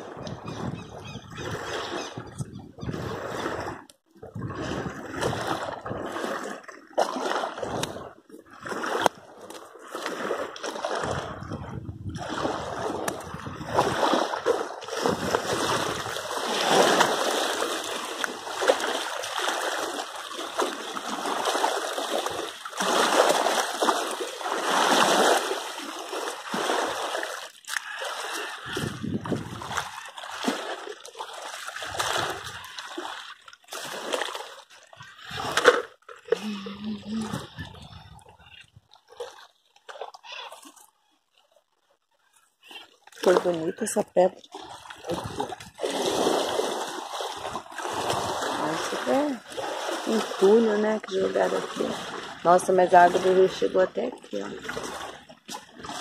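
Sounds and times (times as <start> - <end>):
river rushing and splashing: 15.0 - 30.8.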